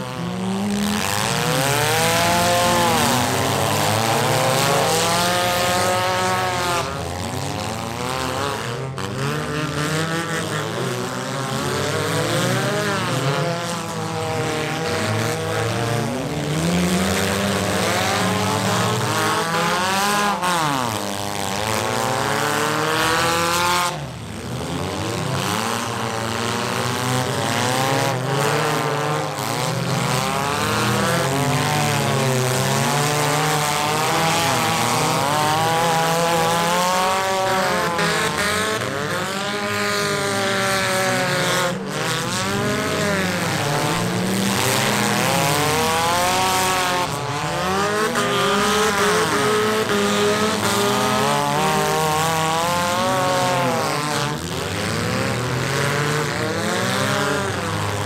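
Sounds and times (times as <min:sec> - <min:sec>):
car engines revving: 0:00.0 - 0:58.0.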